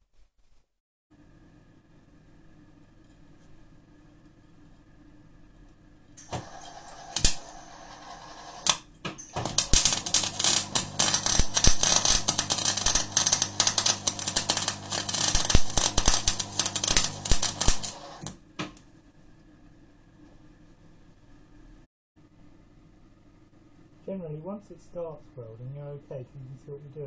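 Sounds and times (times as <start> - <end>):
welder low hum: 6.2 - 18.4
welding arc crackling: 6.2 - 18.4
welding arc popping: 6.2 - 18.4.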